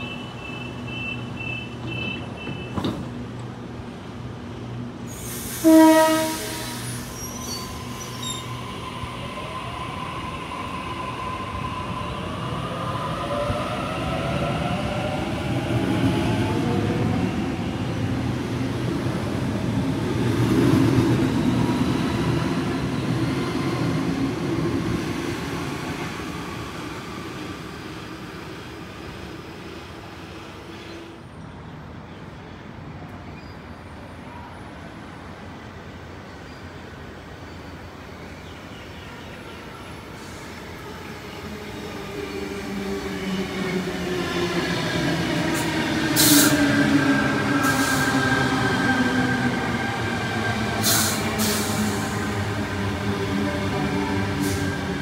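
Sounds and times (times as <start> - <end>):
train horn blast: 5.6 - 6.8.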